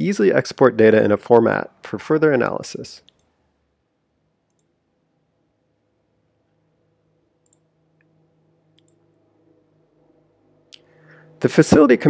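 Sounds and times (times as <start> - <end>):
faint steady hum: 0.0 - 12.0
computer mouse clicks: 3.0 - 3.4, 4.5 - 4.8, 7.4 - 8.1, 8.7 - 9.0.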